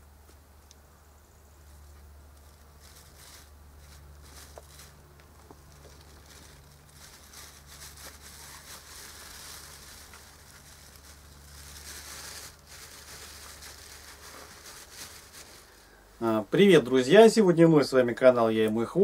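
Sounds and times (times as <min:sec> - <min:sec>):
plastic bag crinkling and tearing: 0:01.7 - 0:16.0.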